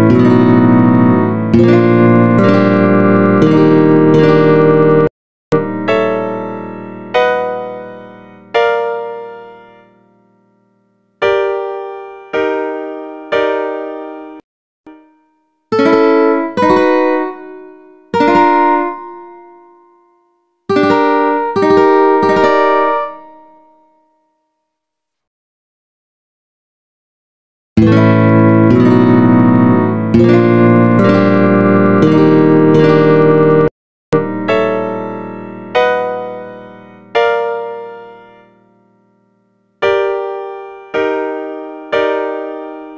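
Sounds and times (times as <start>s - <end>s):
ukulele chords ringing: 0.0s - 9.4s, 14.9s - 23.8s, 27.8s - 38.1s.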